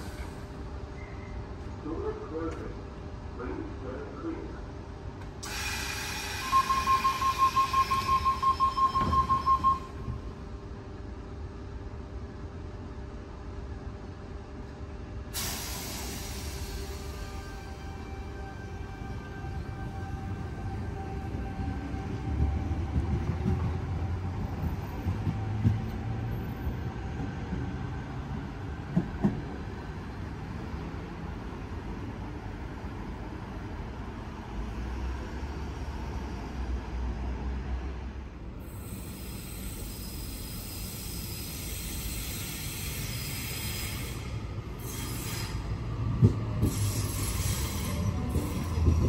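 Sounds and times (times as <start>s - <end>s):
train rumbling: 0.0s - 49.0s
train knocks: 6.2s - 10.2s, 21.0s - 26.4s, 28.8s - 29.7s, 45.8s - 49.0s.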